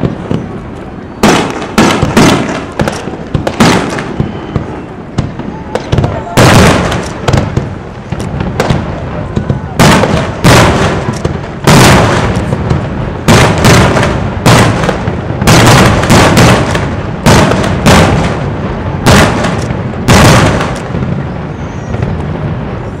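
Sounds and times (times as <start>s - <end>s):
echo of bangs: 1.2s - 21.3s
firework shells bursting: 5.2s - 22.2s.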